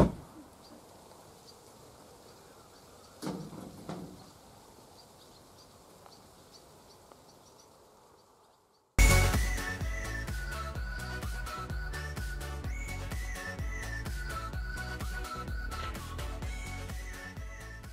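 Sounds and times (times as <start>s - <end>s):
insects chirping: 0.4s - 9.0s.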